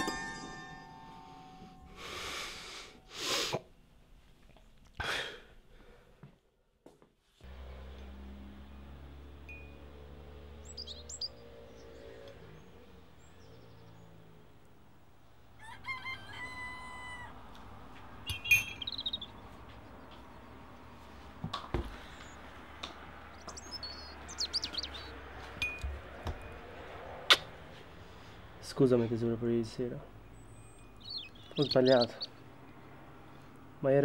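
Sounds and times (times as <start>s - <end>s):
small birds chirping: 7.6s - 34.0s
rooster crowing: 15.5s - 17.8s.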